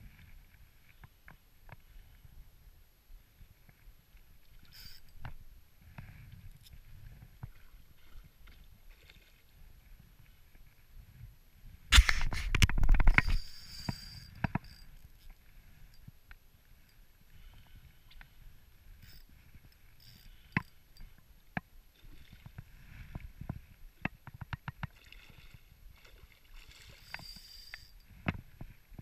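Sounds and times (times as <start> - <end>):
fishing reel cranking: 4.7 - 5.2, 12.2 - 15.3, 19.0 - 21.0, 26.9 - 28.0.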